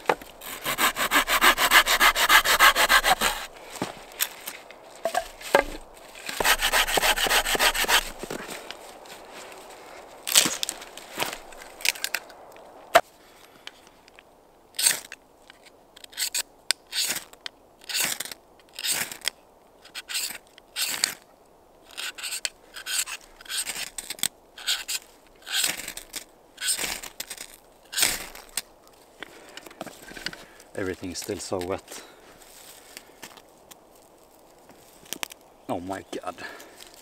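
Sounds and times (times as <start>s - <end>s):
knife scraping ferrocerium rod: 0.4s - 3.5s, 5.7s - 8.2s
dry branch snapping: 10.2s - 13.0s.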